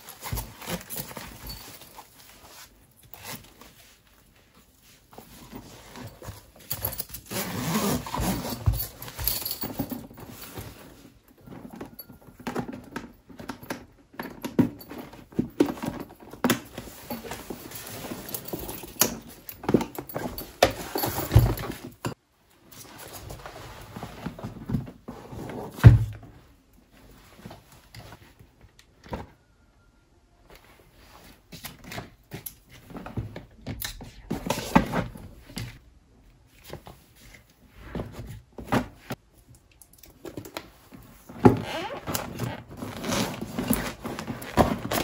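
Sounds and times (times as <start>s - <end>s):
zipper on fabric pouch: 7.2s - 8.7s.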